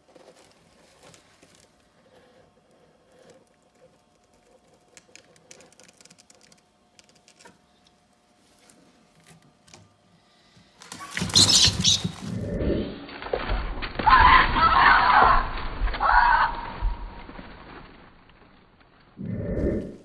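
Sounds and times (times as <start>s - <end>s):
rat scratching on wood: 0.0s - 7.6s, 11.2s - 12.2s.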